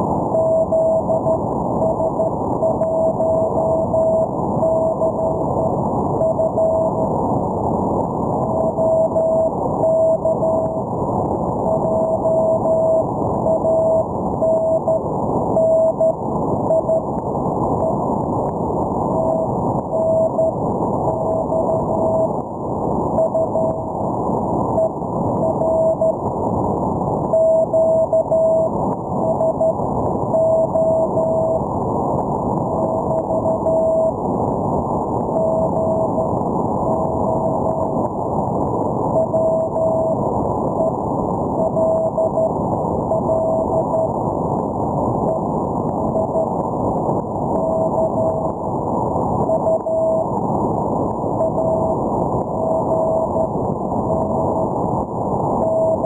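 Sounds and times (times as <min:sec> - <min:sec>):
morse code beeps: 0:00.3 - 0:07.1, 0:08.4 - 0:10.9, 0:11.6 - 0:18.0, 0:19.0 - 0:22.4, 0:23.1 - 0:24.0, 0:24.7 - 0:26.2, 0:27.3 - 0:31.7, 0:32.6 - 0:34.2, 0:35.3 - 0:38.0, 0:39.1 - 0:41.0, 0:41.6 - 0:44.2, 0:47.5 - 0:48.6, 0:49.4 - 0:50.3, 0:51.3 - 0:54.7, 0:55.6 - 0:56.0.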